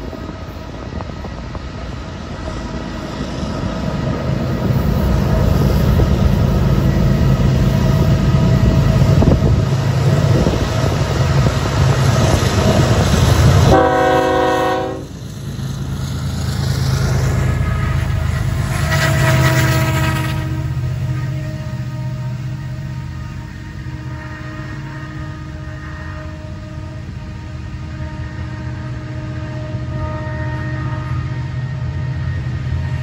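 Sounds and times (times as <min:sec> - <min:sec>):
diesel locomotive engine rumble: 0:00.0 - 0:33.0
train horn blast: 0:13.5 - 0:15.2, 0:17.7 - 0:33.0.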